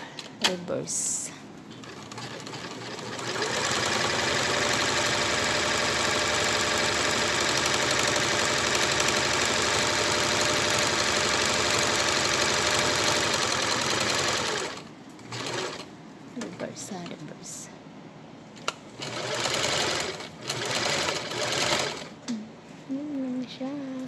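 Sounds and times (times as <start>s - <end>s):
electric sewing machine running: 1.8s - 15.9s, 19.0s - 22.2s.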